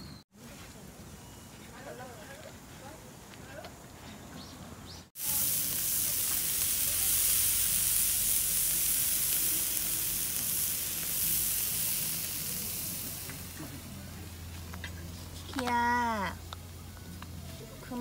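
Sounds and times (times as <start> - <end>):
food sizzling on a grill plate: 5.2 - 16.5.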